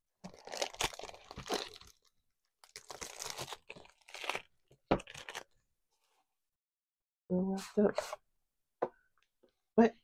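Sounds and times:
plastic wrapping crinkling: 0.2s - 5.5s.

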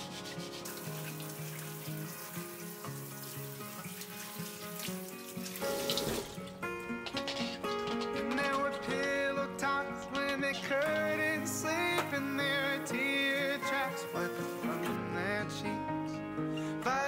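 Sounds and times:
background music: 0.0s - 17.0s
tap running into sink: 0.7s - 8.7s, 10.2s - 12.3s
water splashing over hands: 3.2s - 6.5s.

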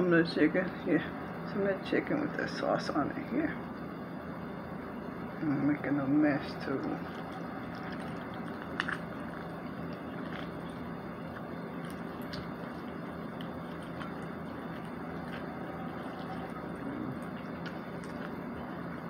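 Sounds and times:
steady background hum: 0.0s - 19.0s
wet squishes of food pulled apart: 7.0s - 18.9s.

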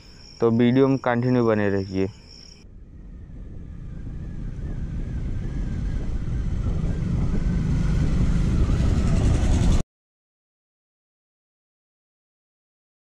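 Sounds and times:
wind noise on microphone: 2.0s - 9.8s.

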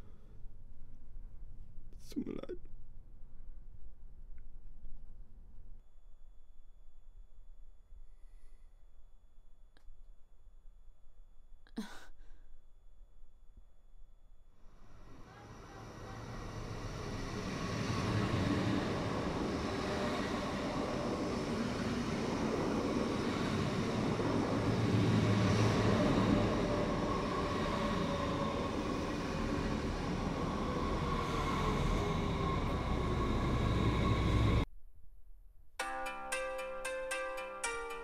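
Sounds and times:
train rumbling past: 14.7s - 34.7s.

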